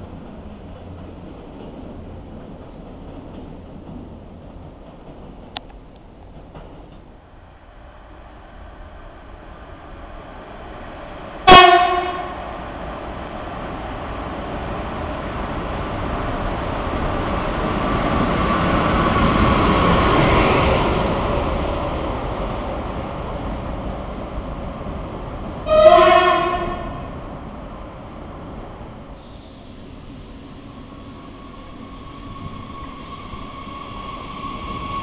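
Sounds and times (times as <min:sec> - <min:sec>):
train rumble: 0:00.0 - 0:35.0
locomotive horn blast: 0:11.4 - 0:12.4, 0:25.6 - 0:27.1.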